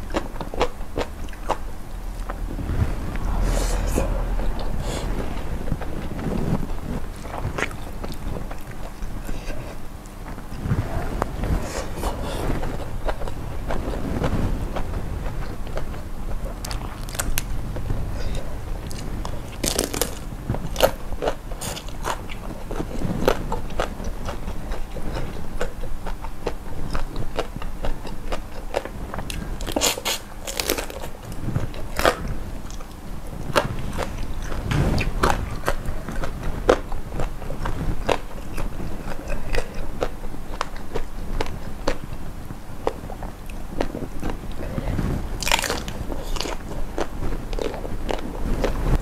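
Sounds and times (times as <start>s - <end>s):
person chewing: 0.0s - 42.1s, 42.8s - 48.8s
crunchy bites: 14.8s - 23.9s, 26.4s - 31.2s, 45.4s - 48.7s.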